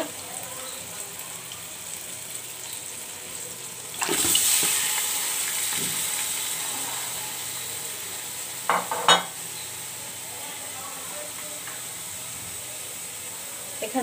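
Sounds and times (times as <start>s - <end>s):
meat hitting hot oil sizzle: 0.0s - 10.0s
onions sizzling in oil: 0.0s - 14.0s.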